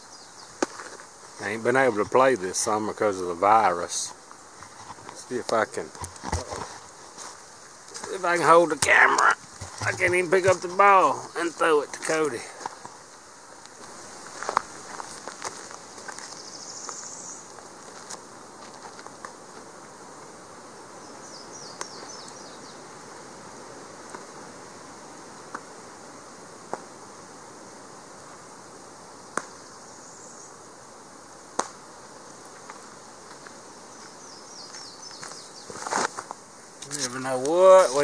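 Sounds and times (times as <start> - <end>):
small birds chirping: 0.0 - 0.7, 7.8 - 13.0, 16.0 - 17.6, 20.9 - 23.0, 33.8 - 36.0.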